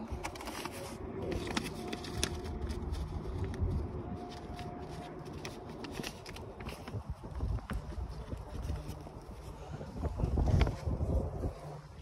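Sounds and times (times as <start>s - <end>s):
paper bag crinkling: 0.0s - 9.5s
wind rumble on microphone: 1.2s - 12.0s.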